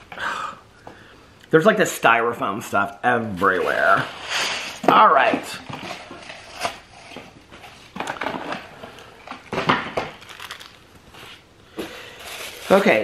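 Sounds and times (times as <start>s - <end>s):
cardboard and styrofoam crunching: 10.2s - 11.4s, 12.0s - 13.0s.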